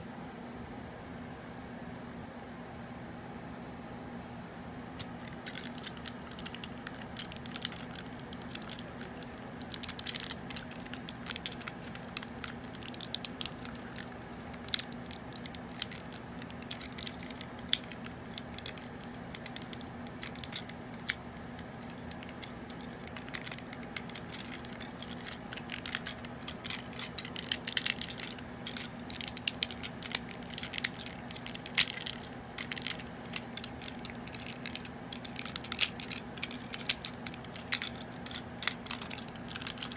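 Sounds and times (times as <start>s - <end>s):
steady low hum: 0.0s - 39.9s
plastic toy clicks and snaps: 5.0s - 39.9s.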